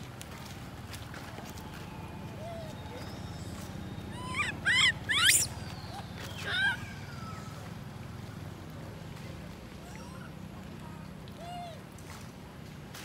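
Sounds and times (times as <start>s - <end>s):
infant monkey crying: 2.4s - 3.3s, 4.1s - 7.5s, 9.9s - 10.3s.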